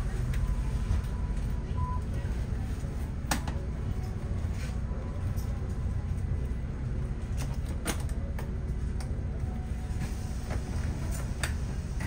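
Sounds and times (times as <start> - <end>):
bus engine and road rumble: 0.0 - 12.0.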